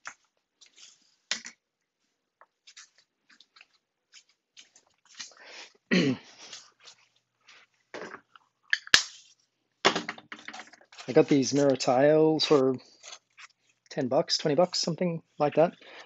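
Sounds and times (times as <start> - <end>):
objects rustling and clicking: 2.4 - 5.4, 6.3 - 14.6.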